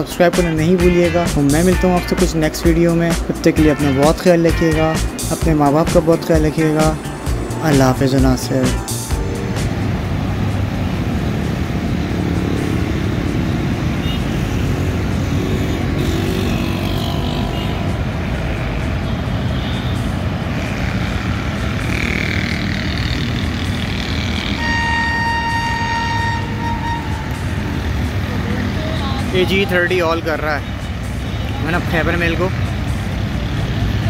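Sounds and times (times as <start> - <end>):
train horn blast: 24.2 - 27.9.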